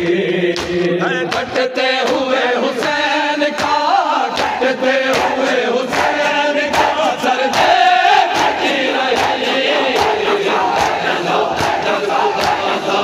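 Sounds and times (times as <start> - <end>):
crowd of men chanting: 0.0 - 13.0
hands beating on bare chests: 8.3 - 12.7.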